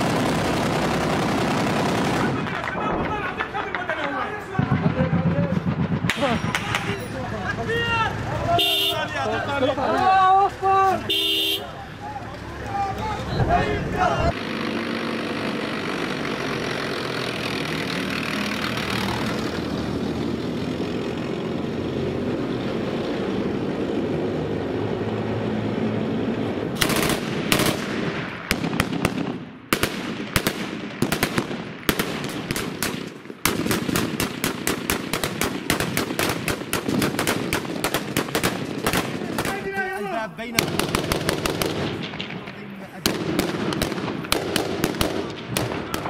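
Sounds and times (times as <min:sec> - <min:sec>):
rifle gunfire: 0:00.0 - 0:02.6, 0:26.8 - 0:39.6, 0:40.6 - 0:46.0
rapid automatic gunfire: 0:00.0 - 0:02.7, 0:26.8 - 0:39.6, 0:40.6 - 0:42.4, 0:43.0 - 0:46.0
tracked vehicle engine and tracks: 0:00.0 - 0:46.0.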